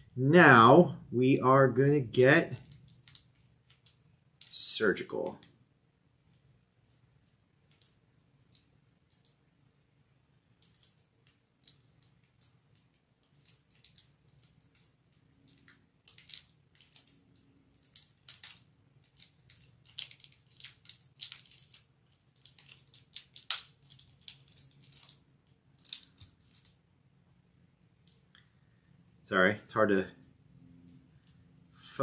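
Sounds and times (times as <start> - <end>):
cellophane crinkling and crackling: 2.6 - 4.5, 10.6 - 26.8.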